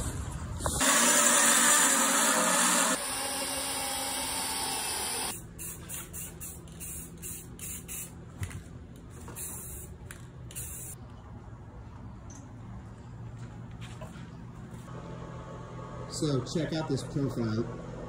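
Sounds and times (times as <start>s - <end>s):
power tool cutting steel bar: 0.8s - 5.4s.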